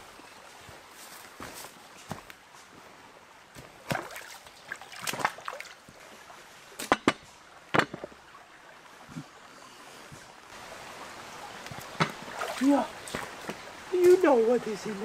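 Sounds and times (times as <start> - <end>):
stream running: 0.0 - 15.0
pot splashing and knocking in water: 3.8 - 5.8, 11.8 - 13.6.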